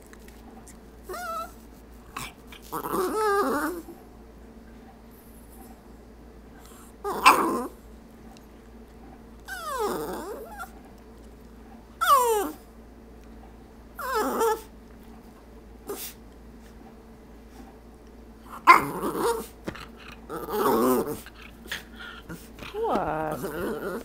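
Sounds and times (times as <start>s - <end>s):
dog whining yowls: 9.5s - 10.7s, 12.0s - 12.6s, 14.0s - 14.7s, 22.7s - 24.0s.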